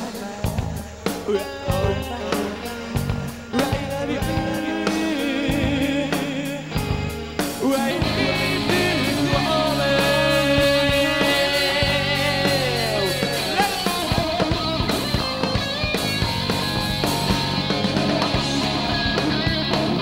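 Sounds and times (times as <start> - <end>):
person singing: 0.0 - 15.5
rock band playing live: 0.0 - 20.0.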